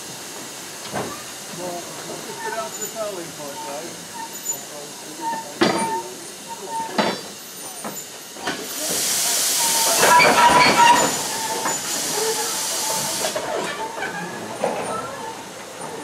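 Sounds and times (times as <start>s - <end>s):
steam locomotive hissing: 0.0s - 16.0s
freight wagons clanking: 5.2s - 8.9s, 9.7s - 16.0s.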